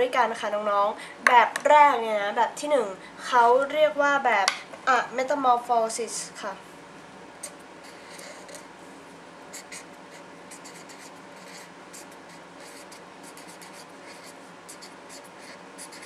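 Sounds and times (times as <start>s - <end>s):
pen scratching on paper: 7.4s - 8.6s, 9.5s - 16.0s.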